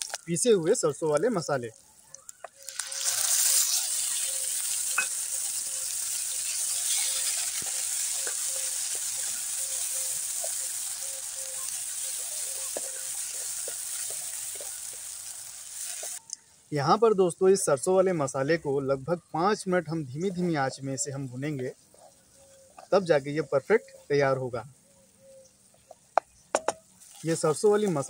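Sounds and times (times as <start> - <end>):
paste sizzling in hot oil: 0.0 - 16.4, 26.8 - 28.0.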